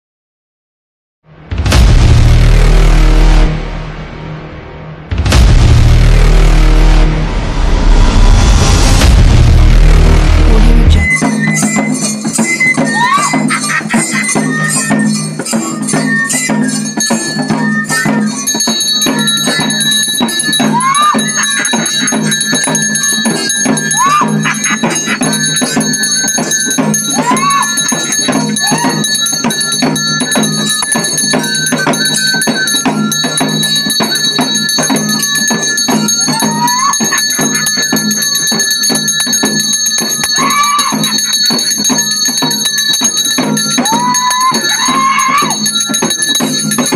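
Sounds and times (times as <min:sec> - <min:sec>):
rapid drumming: 0:01.5 - 0:03.6, 0:05.1 - 0:46.9
hand bell ringing: 0:11.1 - 0:46.9
wind pipe playing: 0:16.1 - 0:46.9.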